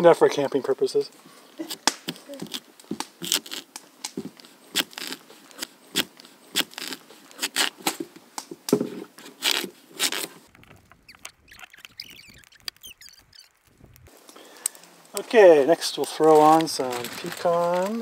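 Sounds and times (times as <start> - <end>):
knife scraping potato skin: 3.2 - 3.7, 4.4 - 8.0, 9.2 - 13.7.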